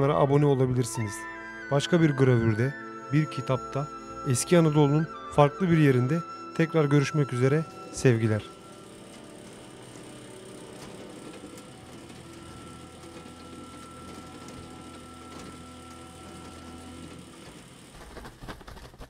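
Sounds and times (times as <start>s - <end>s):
sustained tones: 0.0s - 17.8s
mechanical ticking and whirring: 2.8s - 19.0s.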